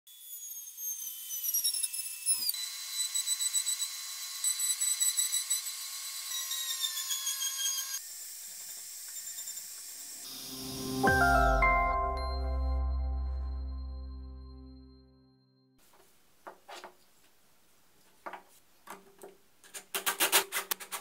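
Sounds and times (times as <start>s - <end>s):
wood router whining: 0.1s - 10.8s.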